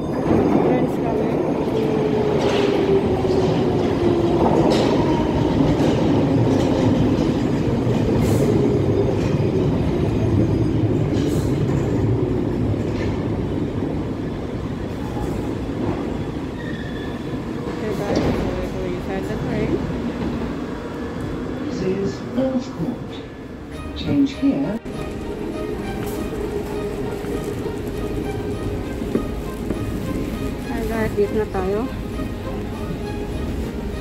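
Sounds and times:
train running noise: 0.0 - 34.0
train braking to a stop: 15.0 - 18.5.

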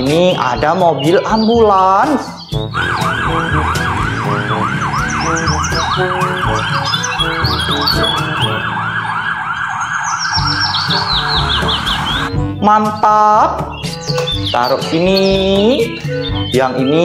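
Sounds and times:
ambulance siren yelping: 2.6 - 12.3
low rumble of traffic: 2.7 - 12.3.

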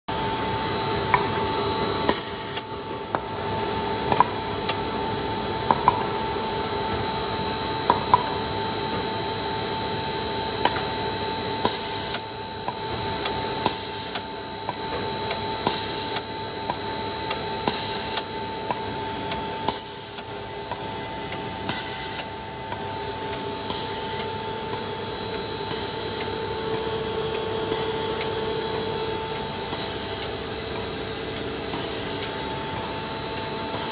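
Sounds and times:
machine hum with high whine: 0.1 - 33.9.

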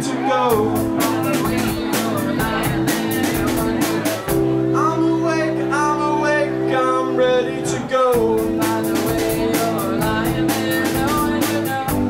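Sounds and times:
man singing: 0.0 - 12.0
rock band playing: 0.0 - 12.0.

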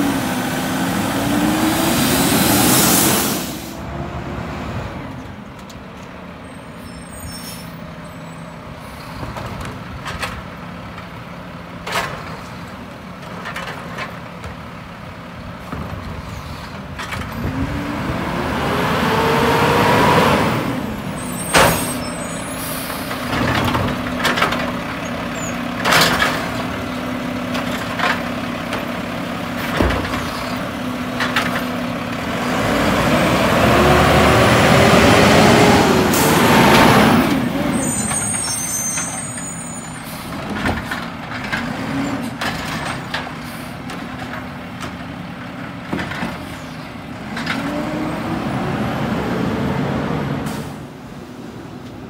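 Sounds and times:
garbage truck diesel engine revving: 0.0 - 5.2, 17.1 - 51.7
air brake hiss: 2.6 - 3.9
side-loader arm clunking and banging: 7.3 - 49.1.

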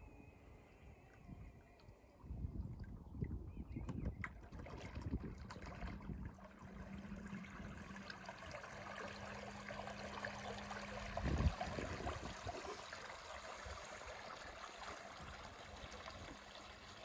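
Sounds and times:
low steady hum: 0.0 - 17.0
small waves lapping: 4.2 - 17.0.

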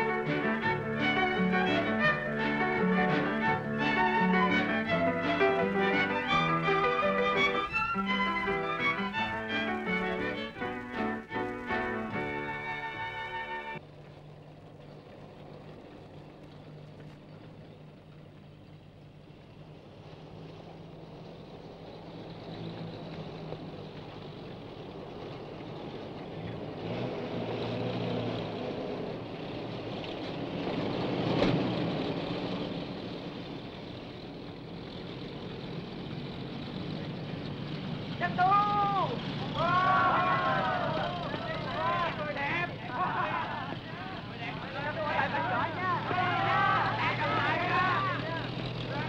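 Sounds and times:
music cue: 0.0 - 13.8
military vehicle engines running: 0.0 - 49.0.

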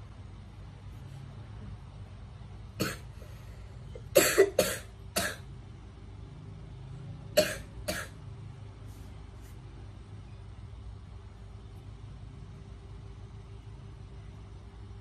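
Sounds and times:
woman coughing: 2.8 - 3.1, 4.1 - 5.4, 7.4 - 8.2.

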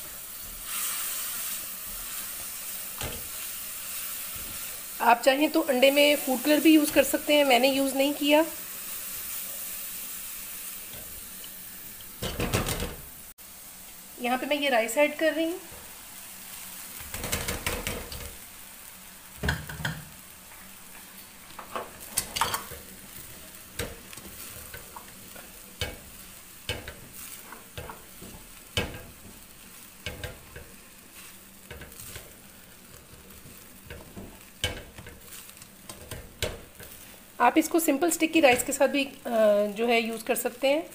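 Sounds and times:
low sizzle of frying: 0.0 - 40.9
spatula scraping a pan: 21.6 - 37.3.

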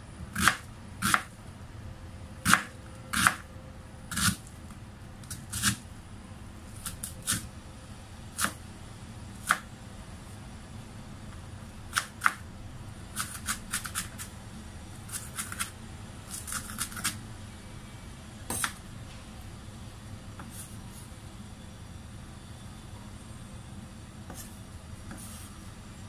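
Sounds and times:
steady low hum: 0.0 - 26.0
knife chopping on wooden board: 18.5 - 18.8.

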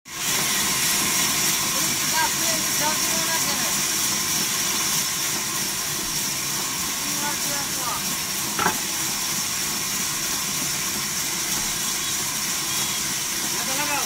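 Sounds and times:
band saw cutting log: 4.2 - 14.0.

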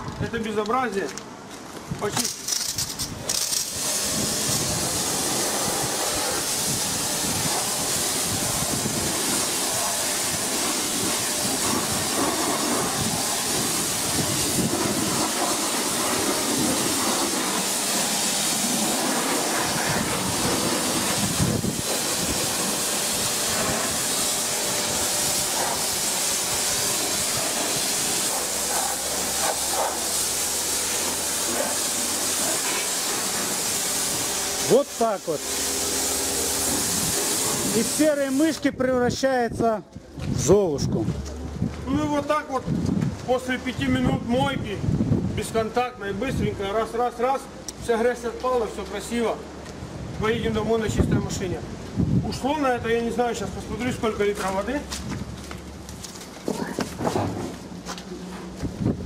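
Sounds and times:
pressure washer spraying water: 2.2 - 38.8.

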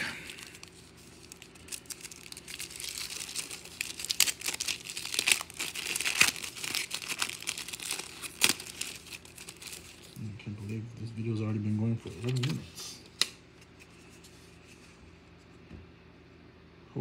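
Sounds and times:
wrapper crinkling and tearing: 0.0 - 10.2.

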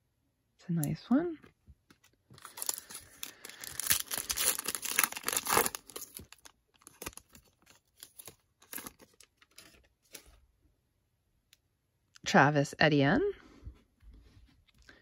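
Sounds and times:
cards rustling and clicking: 1.9 - 10.4
foil wrapper crinkling and tearing: 2.3 - 9.8.

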